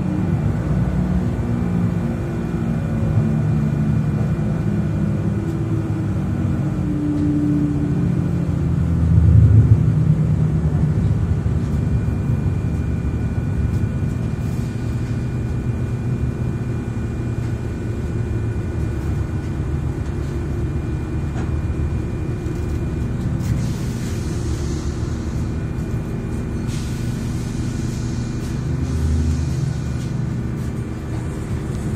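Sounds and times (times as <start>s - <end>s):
train engine drone: 0.0s - 31.9s
hiss: 23.5s - 25.5s.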